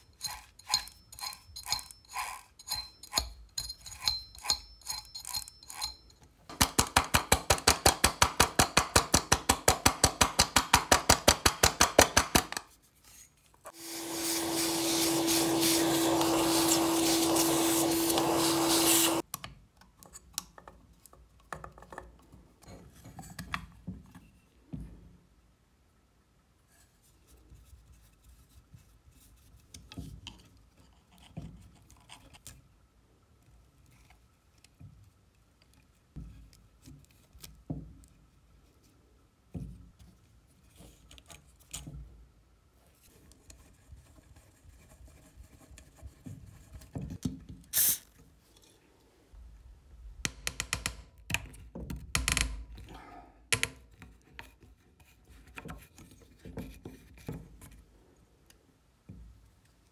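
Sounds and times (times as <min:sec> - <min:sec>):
clicks and scrapes of metal parts: 0:00.0 - 0:06.4
screwdriver working a screw: 0:00.2 - 0:06.0, 0:13.8 - 0:19.2.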